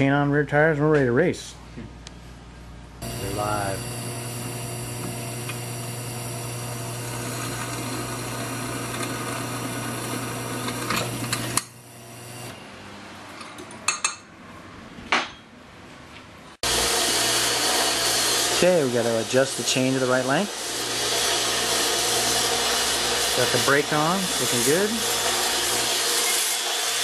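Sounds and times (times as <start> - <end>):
drill press motor hum: 3.0 - 12.6, 16.6 - 27.0.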